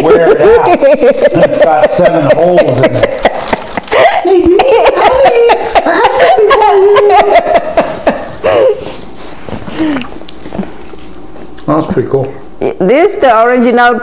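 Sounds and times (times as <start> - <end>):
people laughing together: 0.0 - 8.9.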